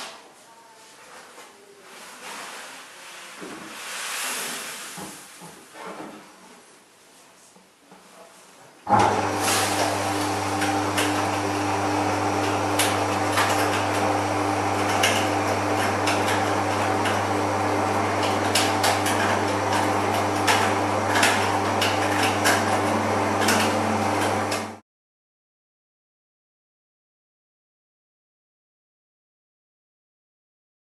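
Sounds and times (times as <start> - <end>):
electric motor humming: 8.9 - 24.8
malt mill crackling: 9.1 - 24.7.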